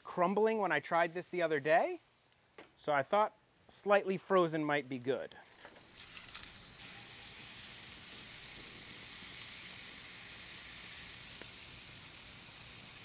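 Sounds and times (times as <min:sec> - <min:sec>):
burger patties sizzling on griddle: 0:00.0 - 0:02.2, 0:04.8 - 0:13.0.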